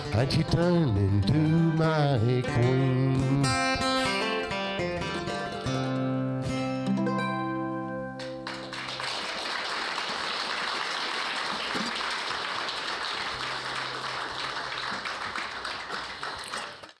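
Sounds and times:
guitar and mandolin chord: 0.0s - 8.7s
audience applauding: 8.2s - 17.0s.

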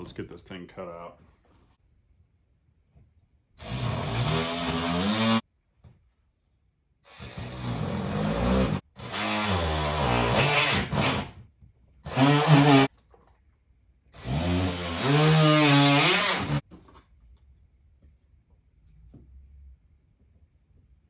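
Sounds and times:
multi-tool cutting drywall: 3.6s - 5.5s, 7.0s - 12.9s, 14.2s - 16.7s.

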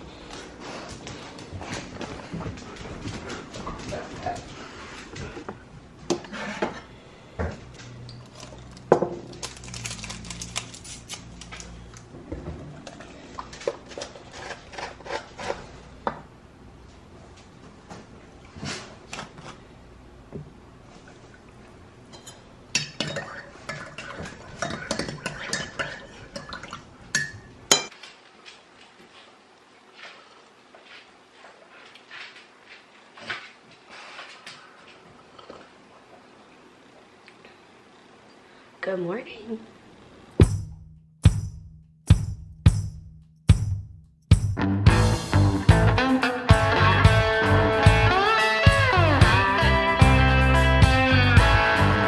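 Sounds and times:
paper packet crinkling and tearing: 8.3s - 11.9s.

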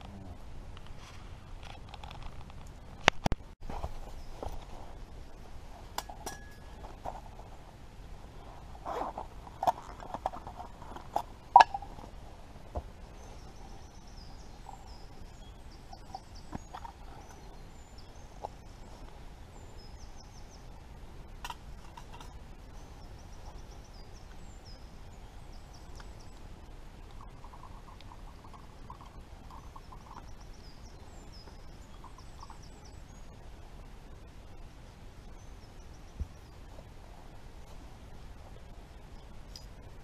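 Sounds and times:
metal clinks and knocks: 6.0s - 6.9s
songbird chirping: 8.3s - 40.0s.

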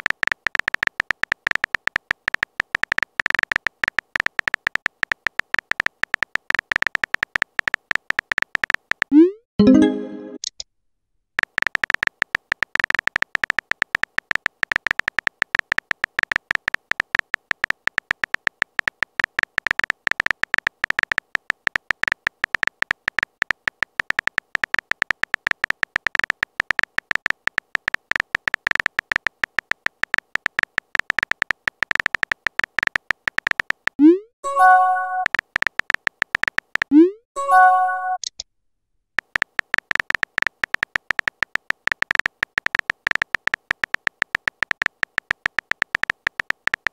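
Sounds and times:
keyboard tap clicks: 0.0s - 9.1s, 11.4s - 34.0s, 35.1s - 36.9s, 39.2s - 46.9s
message chime: 9.6s - 10.4s, 34.5s - 35.3s.

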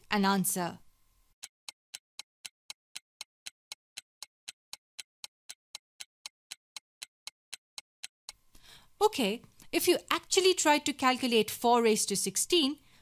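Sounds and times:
clock-like ticking: 1.4s - 8.4s.

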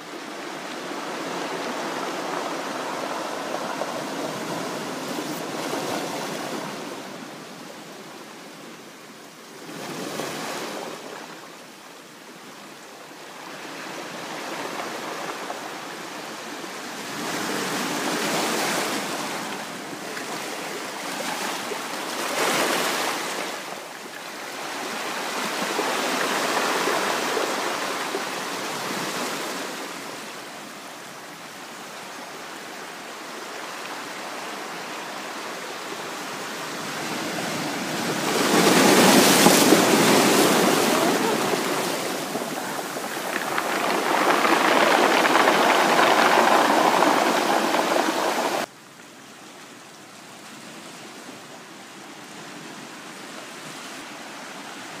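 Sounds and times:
waves washing over stones: 0.0s - 48.7s.

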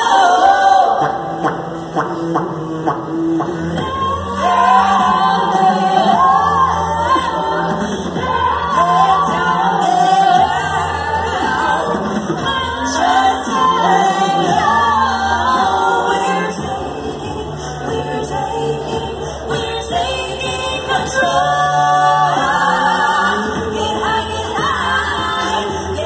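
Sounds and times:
women singing a cappella: 0.0s - 26.0s.

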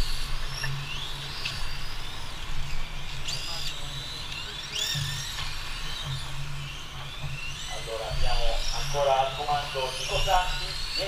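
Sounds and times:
electric motors whining: 0.0s - 11.0s.

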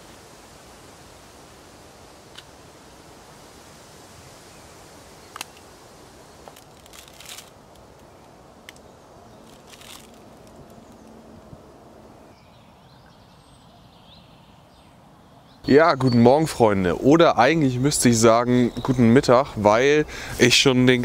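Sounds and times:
steady outdoor hiss: 0.0s - 21.0s
plastic snack wrapper crinkling: 6.4s - 7.9s, 9.4s - 11.0s.

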